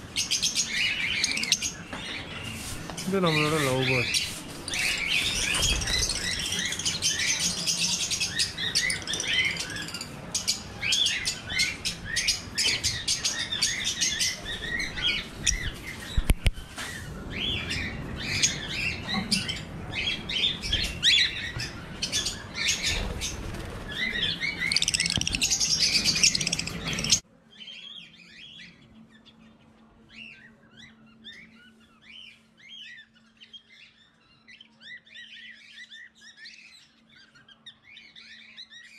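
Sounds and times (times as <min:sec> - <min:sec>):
budgerigars chattering and chirping: 0:23.9 - 0:27.2.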